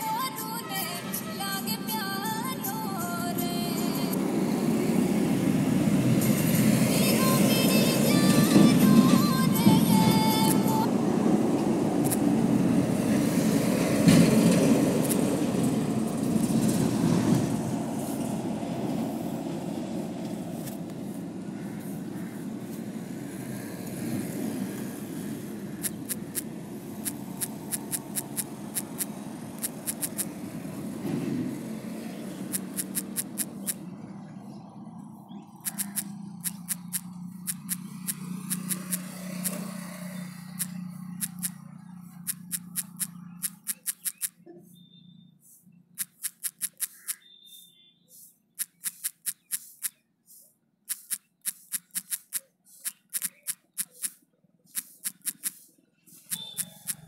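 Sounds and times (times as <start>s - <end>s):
phone keyboard typing clicks: 10.3s - 10.8s, 25.8s - 30.3s, 32.5s - 33.8s, 35.5s - 39.6s, 40.6s - 41.6s, 42.2s - 44.4s, 46.0s - 47.3s, 48.6s - 50.0s, 50.9s - 57.0s.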